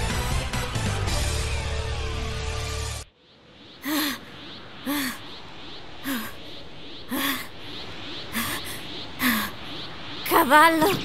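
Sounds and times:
music: 0.0s - 3.1s.

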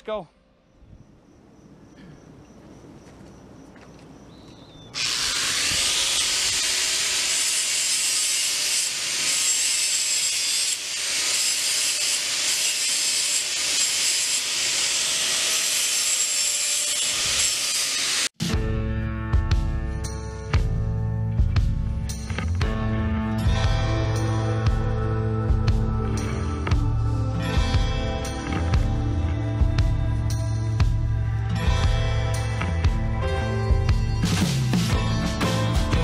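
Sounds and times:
welder arc hissing: 5.0s - 18.4s.

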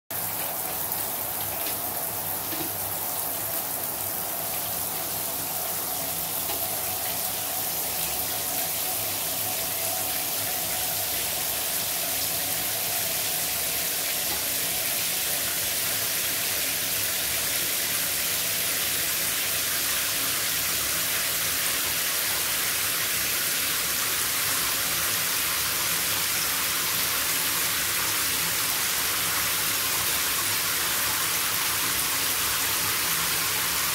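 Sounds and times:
shower head spraying water into bathtub: 0.1s - 17.7s.

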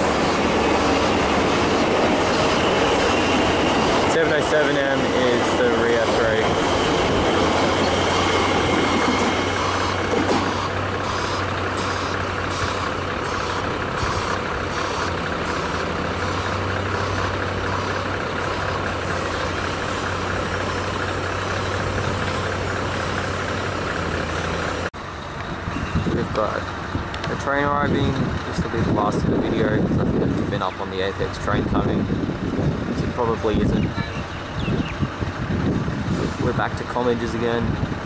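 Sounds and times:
electric train motor whine: 0.0s - 24.8s
wheels ticking over rail joints: 0.0s - 25.5s
train approaching: 0.0s - 38.0s.

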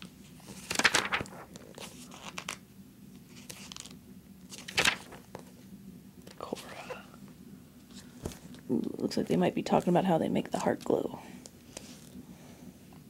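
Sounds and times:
magazine pages turning: 0.3s - 2.6s, 3.2s - 5.5s
paper rustling: 0.3s - 2.6s, 3.3s - 5.5s.

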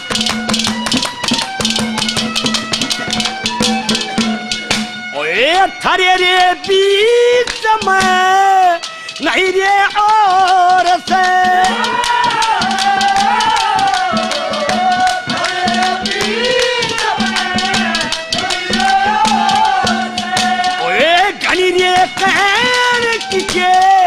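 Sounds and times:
bending melody line: 0.8s - 8.5s
man singing: 5.2s - 24.0s
fast rattling percussion clicks: 6.6s - 24.0s.

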